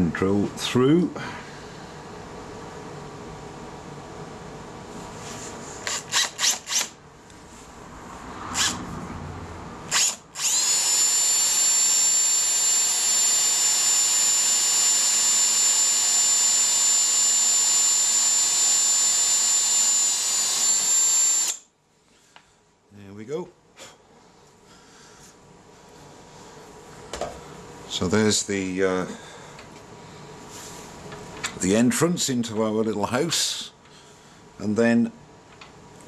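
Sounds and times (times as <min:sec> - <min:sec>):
electric drill whining: 0:05.8 - 0:07.0, 0:08.6 - 0:08.8, 0:09.9 - 0:21.7.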